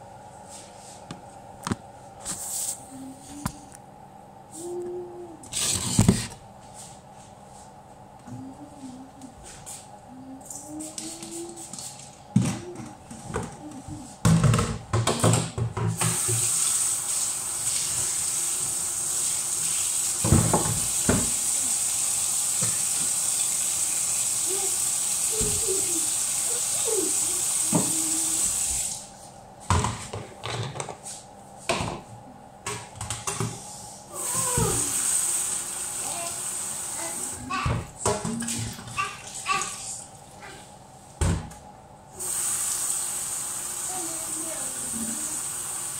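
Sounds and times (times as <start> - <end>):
plastic basins and dishes clattering: 29.7 - 31.0, 37.7 - 39.7.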